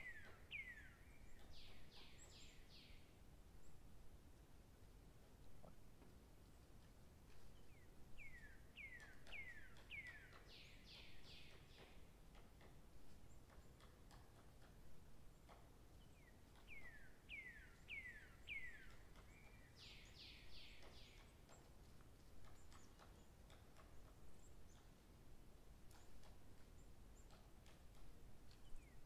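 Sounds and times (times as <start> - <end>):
songbird singing: 0.0 - 4.2, 6.4 - 29.0.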